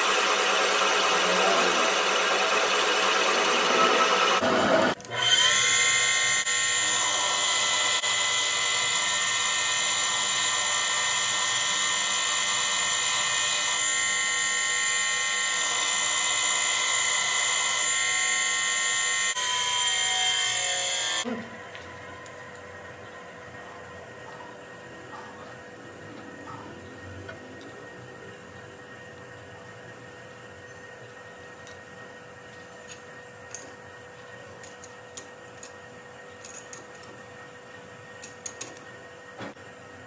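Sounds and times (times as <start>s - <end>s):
power tool high whine: 0.0s - 21.3s.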